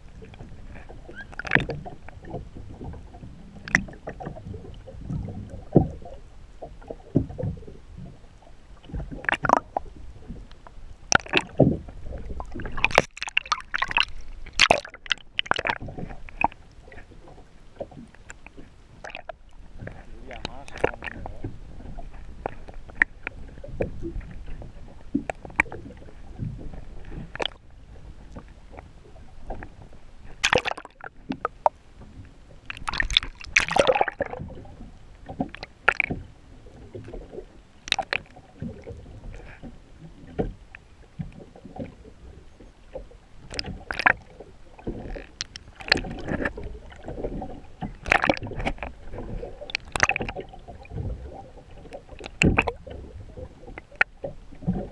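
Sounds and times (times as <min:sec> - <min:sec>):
water sloshing against boat hull: 0:00.0 - 0:54.9
sharp splashes and knocks: 0:01.2 - 0:03.0, 0:03.6 - 0:06.1, 0:08.9 - 0:09.9, 0:11.1 - 0:17.0, 0:17.8 - 0:27.6, 0:30.4 - 0:31.8, 0:32.6 - 0:34.6, 0:35.2 - 0:36.2, 0:36.9 - 0:39.7, 0:42.9 - 0:54.9.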